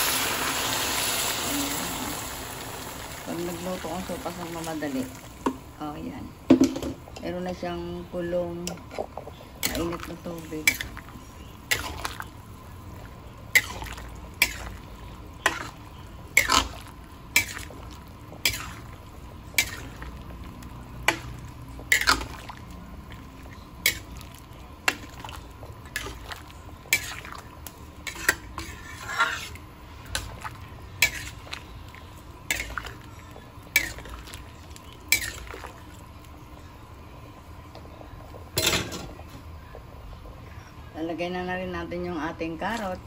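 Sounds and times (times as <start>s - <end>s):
soup sloshing: 9.2s - 36.2s.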